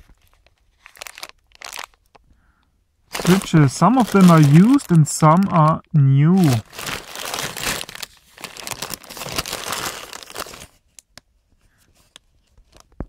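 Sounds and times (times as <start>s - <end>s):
plastic bags crinkling: 0.0s - 2.3s, 3.1s - 11.0s.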